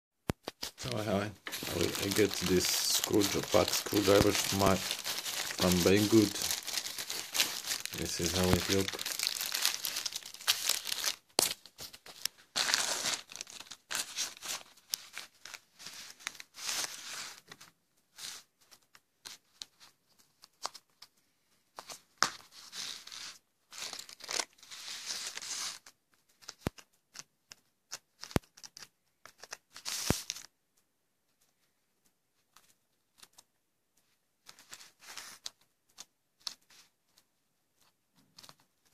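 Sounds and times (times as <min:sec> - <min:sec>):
plastic bag crinkling and tearing: 0:00.6 - 0:17.0, 0:23.8 - 0:25.8.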